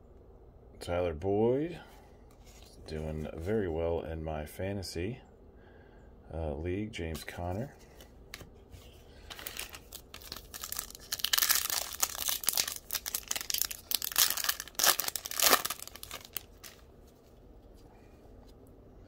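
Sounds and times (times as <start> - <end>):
plastic wrapper tearing and crinkling: 9.3 - 16.8.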